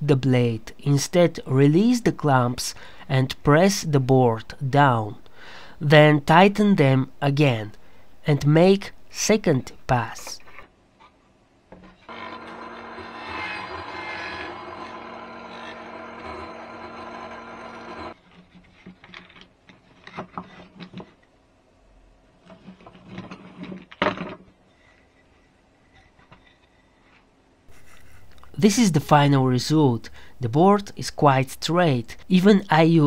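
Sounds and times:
table saw running: 0:12.1 - 0:18.2.

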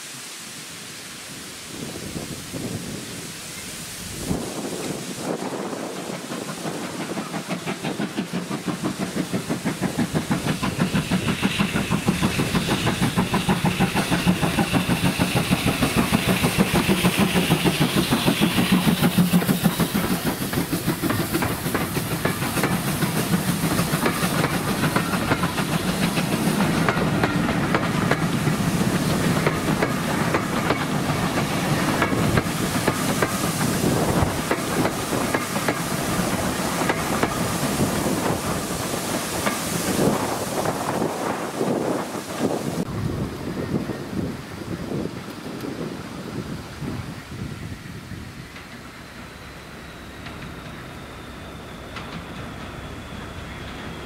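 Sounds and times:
steam locomotive exhaust beats: 0:00.2 - 0:54.0.

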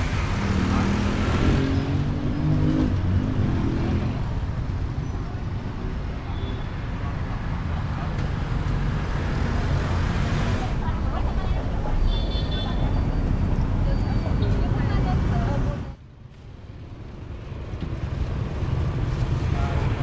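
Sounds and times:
road traffic rumble: 0:00.0 - 0:20.0
people talking: 0:10.5 - 0:13.2, 0:13.8 - 0:16.0.

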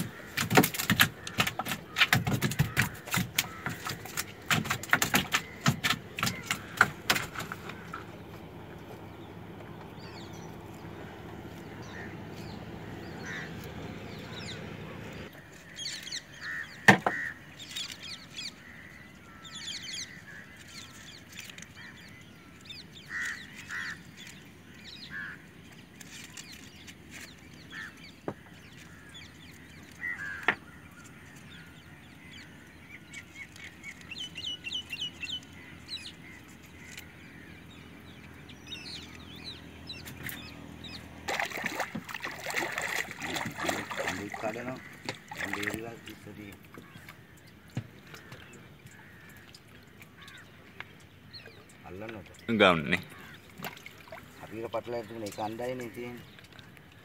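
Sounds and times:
fish flapping against boat hull: 0:00.0 - 0:08.6, 0:41.2 - 0:50.4
short bird calls: 0:10.0 - 0:24.4, 0:27.6 - 0:57.0.

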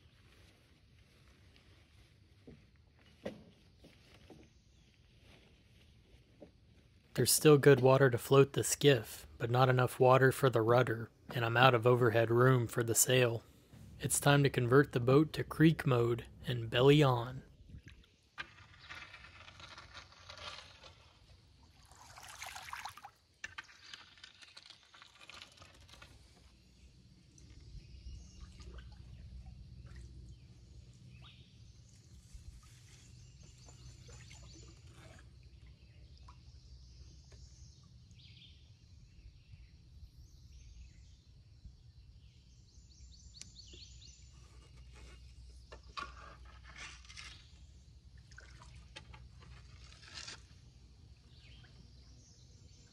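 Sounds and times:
steady low rumble: 0:13.4 - 0:17.8
water splashing and trickling: 0:17.5 - 0:36.8, 0:48.0 - 0:51.8.

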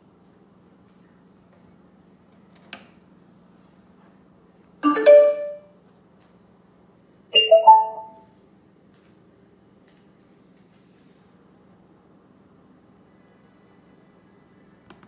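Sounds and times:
electronic chimes from speaker: 0:04.8 - 0:05.6, 0:07.4 - 0:08.2.

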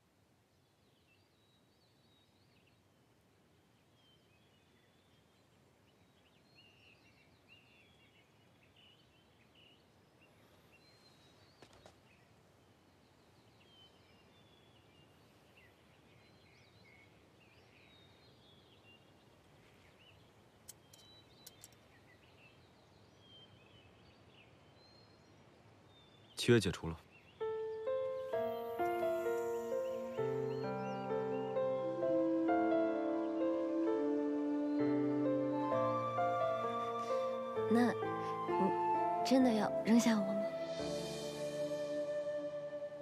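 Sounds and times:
small birds chirping: 0:00.4 - 0:43.0
soft clicks: 0:20.6 - 0:21.9.

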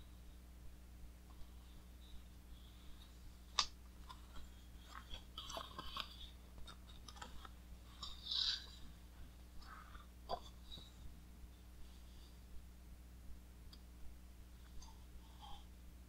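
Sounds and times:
book pages turning and rustling: 0:03.5 - 0:09.0.

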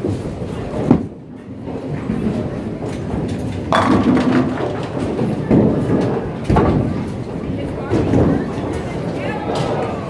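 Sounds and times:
bowling ball rolling: 0:00.7 - 0:08.8
bowling pins clattering: 0:02.1 - 0:07.3.

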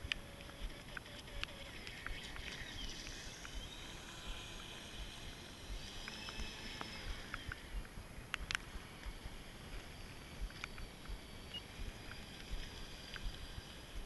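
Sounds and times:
rc boat electric motor whining: 0:00.0 - 0:07.8
sharp clicks: 0:06.0 - 0:09.2.

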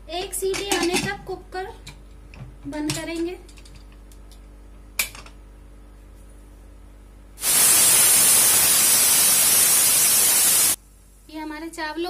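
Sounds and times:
pressure cooker whistle hiss: 0:07.4 - 0:10.8.

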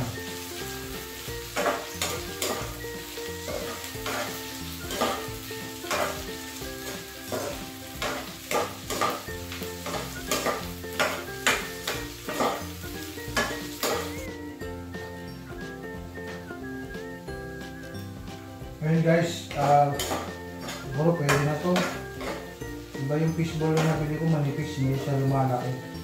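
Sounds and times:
food sizzling in oil: 0:00.0 - 0:26.0
metal spoon scraping pan: 0:01.5 - 0:02.7, 0:03.4 - 0:06.3, 0:06.9 - 0:14.2, 0:19.9 - 0:22.6.

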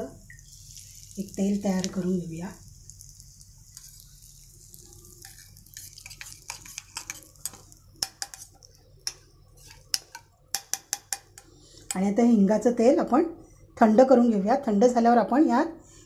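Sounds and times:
spoon scraping and clinking steel bowl: 0:05.1 - 0:12.0.

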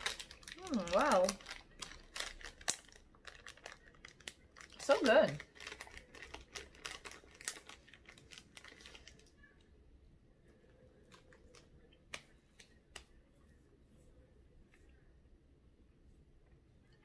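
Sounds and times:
snack packaging crinkling: 0:00.0 - 0:09.4, 0:11.0 - 0:13.1.

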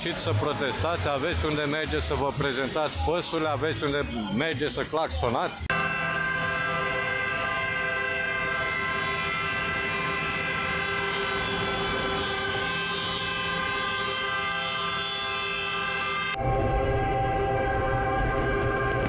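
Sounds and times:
vehicle horns blaring: 0:05.7 - 0:16.5.

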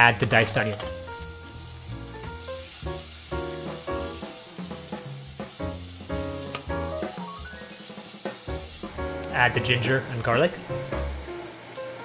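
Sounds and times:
background music: 0:00.0 - 0:12.0
onion sizzling in hot oil: 0:00.0 - 0:12.0.

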